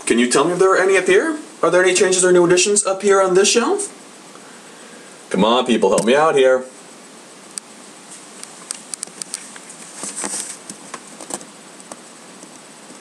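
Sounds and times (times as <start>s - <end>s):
steady hiss: 0.0s - 13.0s
rustling: 8.0s - 13.0s.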